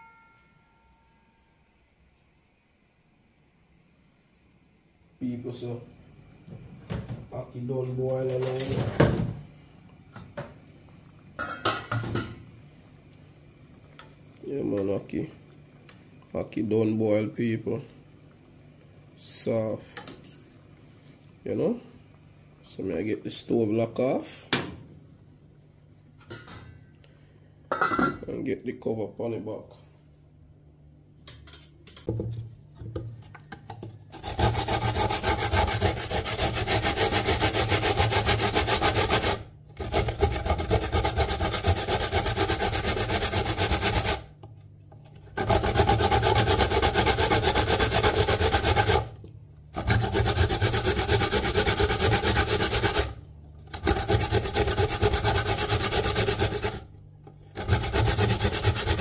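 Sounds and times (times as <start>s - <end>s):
coconut grating on metal grater: 34.1s - 44.3s, 45.1s - 59.0s.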